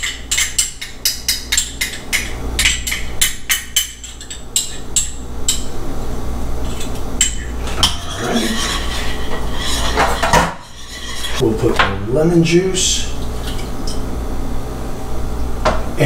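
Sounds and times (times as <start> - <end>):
utensil clinking against glass bowl: 0.0 - 5.7
soft stirring and handling noises: 6.6 - 11.8.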